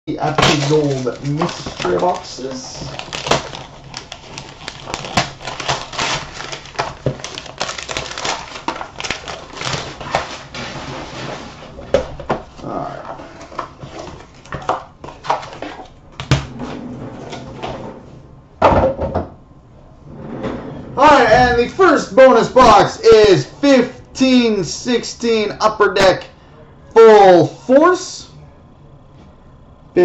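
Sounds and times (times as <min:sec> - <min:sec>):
foil wrapping paper crackling: 0:00.2 - 0:11.5.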